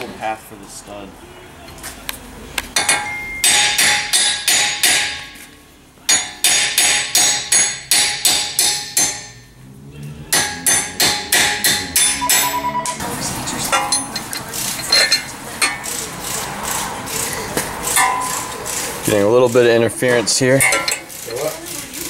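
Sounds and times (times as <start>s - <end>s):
hammer striking metal: 2.8s - 5.4s, 6.1s - 9.5s, 10.3s - 13.0s.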